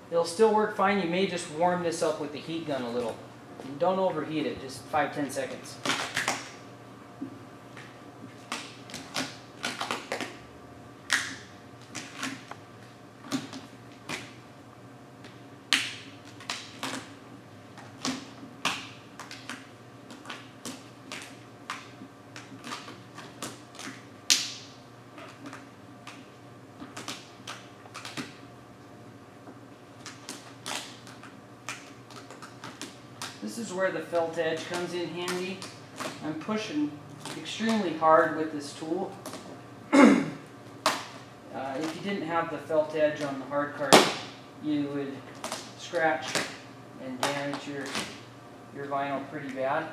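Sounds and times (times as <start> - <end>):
vinyl film crackling and snapping: 5.4 - 6.6, 7.7 - 10.4, 15.2 - 28.4, 29.9 - 38.3, 45.3 - 48.2.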